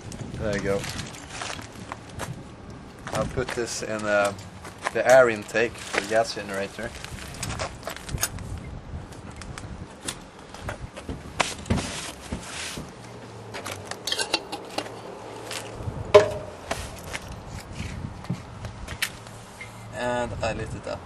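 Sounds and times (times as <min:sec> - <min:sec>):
sharp knock: 0:16.2 - 0:16.6.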